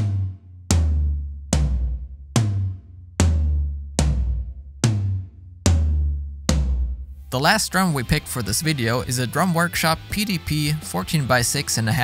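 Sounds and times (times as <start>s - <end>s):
low tom drums struck: 0.0s - 7.5s.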